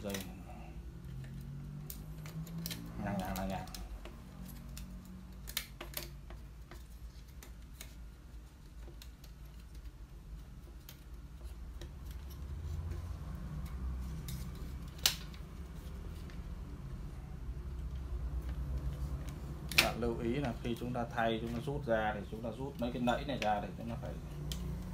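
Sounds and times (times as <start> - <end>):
sharp plastic snap: 14.8 - 15.5, 19.6 - 20.0.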